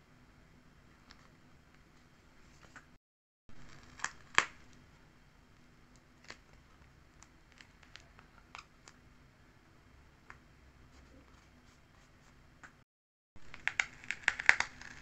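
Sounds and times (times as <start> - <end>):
paper sticker book crackling: 13.4 - 15.0.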